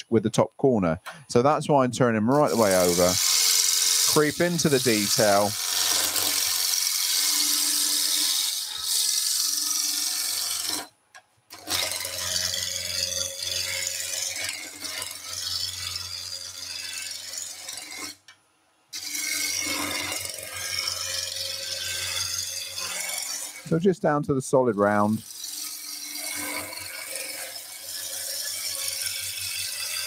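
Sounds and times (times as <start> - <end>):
gouge cutting wood on lathe: 2.3 - 10.9, 11.5 - 18.2, 19.0 - 30.0
lathe low hum: 19.0 - 30.0.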